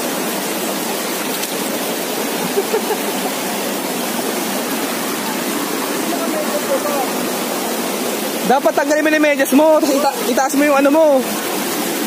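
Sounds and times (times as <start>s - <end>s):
stream rushing over rocks: 0.0s - 12.0s.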